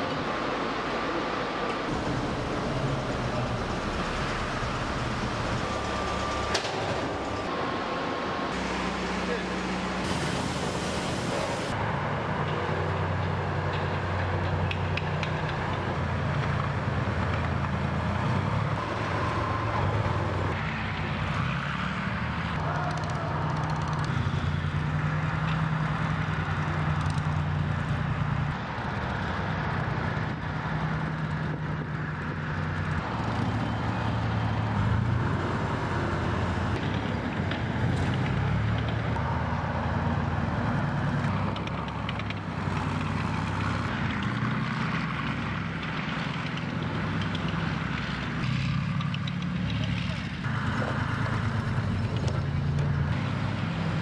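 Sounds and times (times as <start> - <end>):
military vehicle engines running: 0.0 - 54.0
tank diesel engine moving over snow: 0.0 - 54.0.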